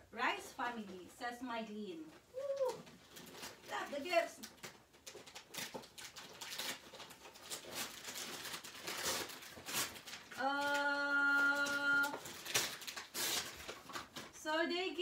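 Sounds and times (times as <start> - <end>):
wrapping paper tearing: 2.4 - 14.4.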